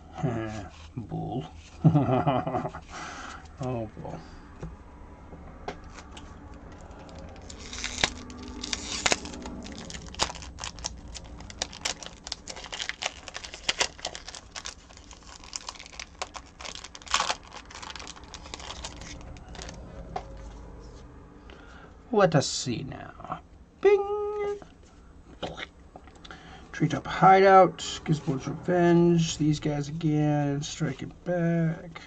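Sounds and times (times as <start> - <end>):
wrapper being torn and crinkled: 6.8 - 19.8.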